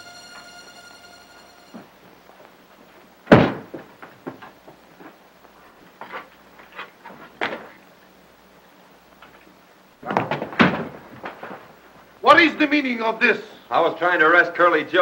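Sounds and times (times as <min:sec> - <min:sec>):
trapdoor heavy wooden thud: 0:03.3 - 0:04.4, 0:10.0 - 0:11.7.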